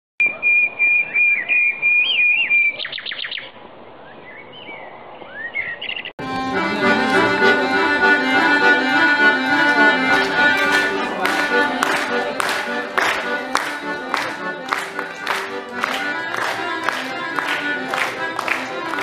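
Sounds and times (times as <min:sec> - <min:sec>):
solo accordion tune: 0:06.2 - 0:19.0.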